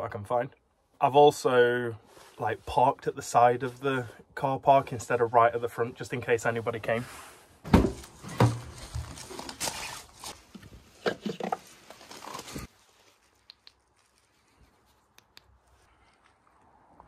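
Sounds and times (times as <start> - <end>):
knocks rustles and bumps: 7.6 - 9.4.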